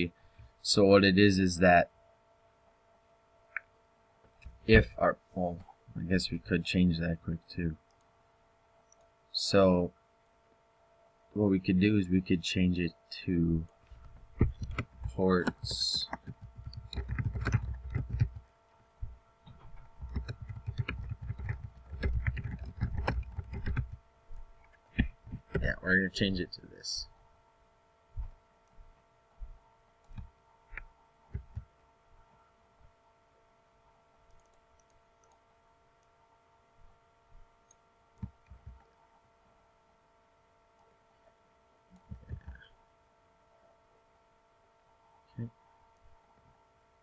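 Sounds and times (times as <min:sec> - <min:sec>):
faint electrical hum: 0:00.0 - 0:47.0
computer mouse clicks: 0:14.0 - 0:18.4, 0:19.5 - 0:24.0, 0:34.3 - 0:35.4
keyboard typing: 0:14.1 - 0:18.5, 0:19.5 - 0:24.0, 0:30.0 - 0:31.7, 0:34.3 - 0:35.4.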